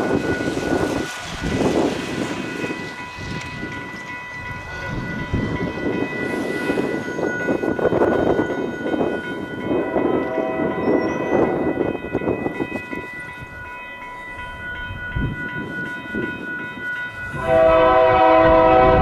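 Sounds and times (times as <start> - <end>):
high ringing tone: 0.0 - 18.9
train wheels on rails: 0.0 - 19.0.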